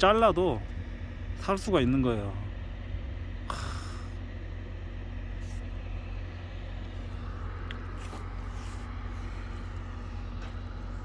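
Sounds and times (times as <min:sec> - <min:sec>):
faint constant hum: 0:00.0 - 0:11.0
low background rumble: 0:00.0 - 0:11.0
short rustle: 0:07.9 - 0:11.0.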